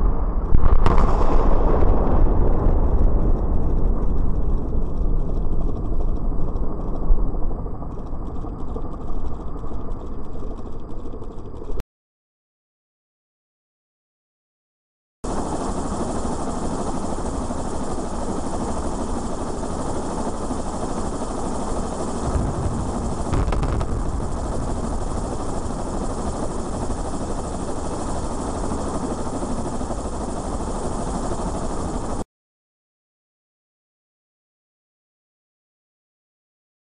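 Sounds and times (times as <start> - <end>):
deep explosion rumble: 0.0 - 6.5, 22.2 - 27.6
sharp explosive cracks: 0.4 - 4.2, 22.2 - 27.0
helicopter noise: 2.9 - 11.8, 15.3 - 32.2.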